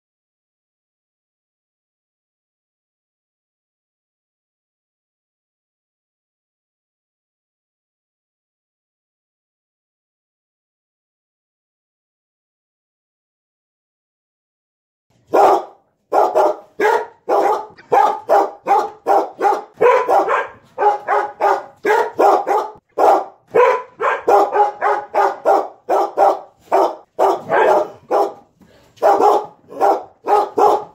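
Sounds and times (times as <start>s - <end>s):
dog barking: 15.3s - 30.9s.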